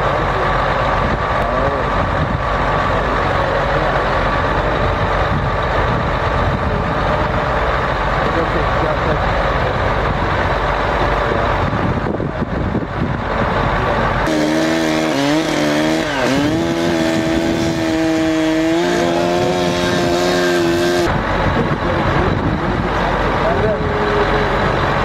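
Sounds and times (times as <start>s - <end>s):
diesel truck engine rumbling: 0.0s - 25.0s
chainsaw running at high revs: 14.2s - 21.1s.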